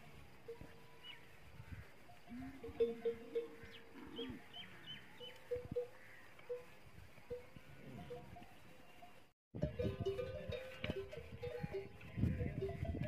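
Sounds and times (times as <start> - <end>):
camel neck bells clanking: 5.5 - 6.6, 7.3 - 13.0.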